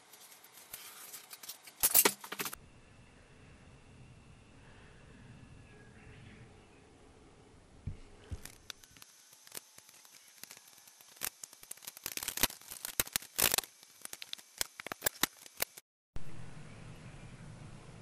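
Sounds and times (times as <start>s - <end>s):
masking tape being peeled: 8.4s - 15.8s.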